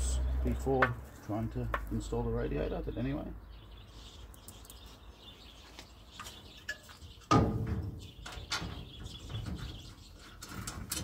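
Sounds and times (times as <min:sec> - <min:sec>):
metal knocking and scraping: 0:06.6 - 0:11.0.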